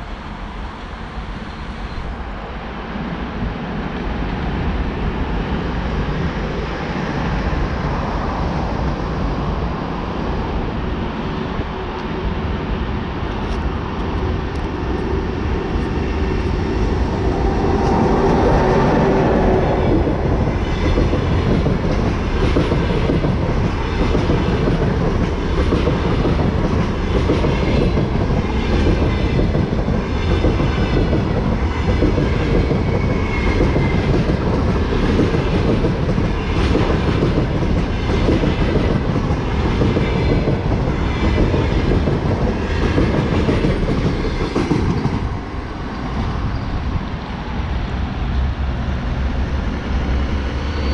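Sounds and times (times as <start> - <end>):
electric locomotive passing: 0.0 - 50.9
wheels clickety-clack on rail joints: 13.2 - 50.9.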